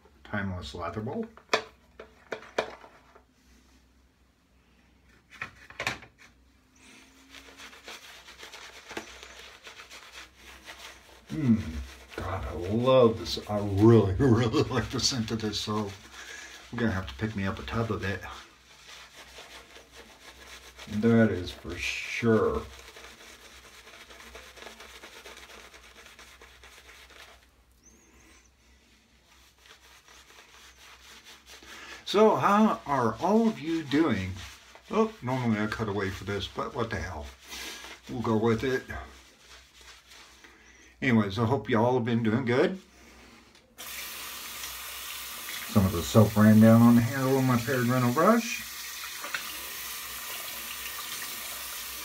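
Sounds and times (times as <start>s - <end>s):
shaving brush swishing lather: 6.3s - 41.6s, 43.8s - 52.0s.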